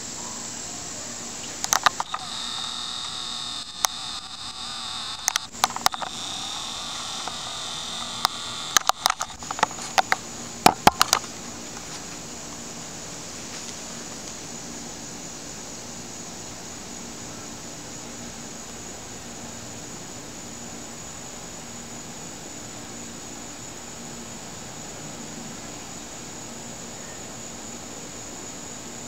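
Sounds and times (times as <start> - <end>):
high-pitched insect drone: 1.6 - 10.1.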